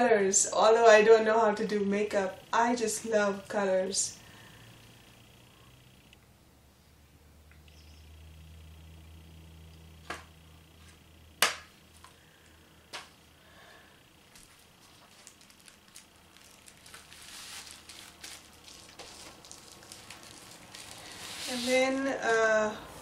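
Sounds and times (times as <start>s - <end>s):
bubble-wrap mailer crinkling: 14.3s - 22.0s.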